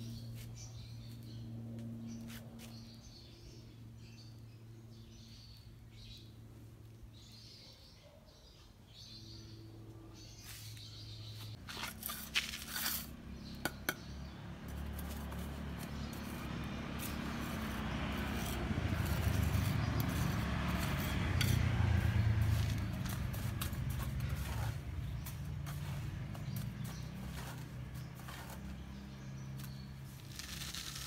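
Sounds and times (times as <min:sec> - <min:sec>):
trowel clinking and scraping brick: 0:11.6 - 0:14.1, 0:14.7 - 0:31.0.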